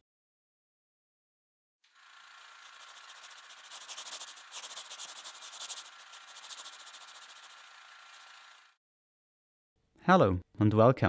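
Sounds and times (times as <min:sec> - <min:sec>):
stylus scratching across paper: 0:02.0 - 0:08.6.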